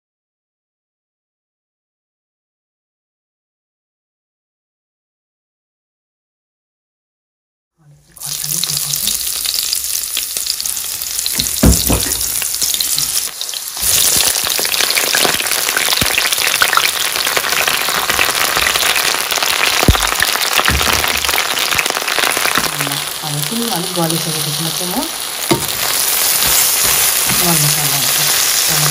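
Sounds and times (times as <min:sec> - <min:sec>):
eggplant sizzling in hot oil: 0:08.2 - 0:28.9.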